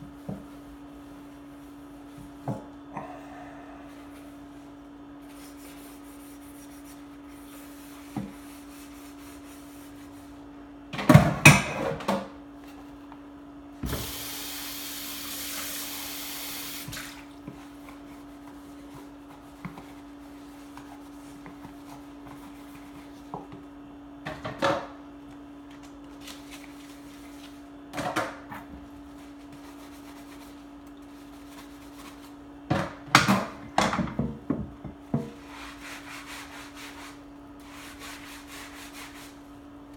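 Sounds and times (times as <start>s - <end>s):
steady low hum: 0.0s - 10.9s
tap running: 13.8s - 14.3s.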